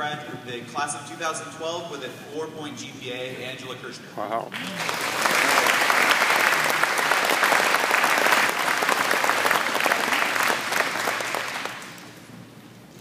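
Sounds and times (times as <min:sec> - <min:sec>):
audience applauding: 0:04.6 - 0:12.2.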